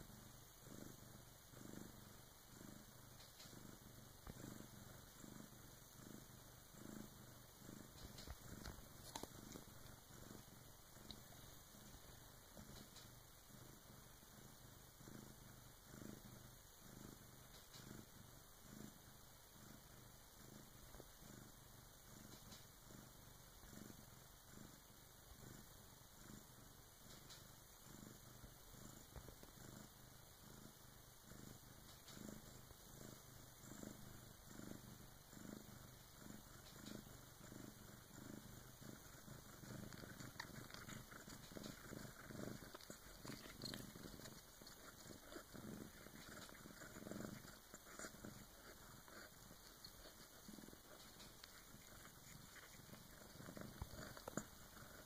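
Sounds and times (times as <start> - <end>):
cat purring softly: 0.0 - 55.0.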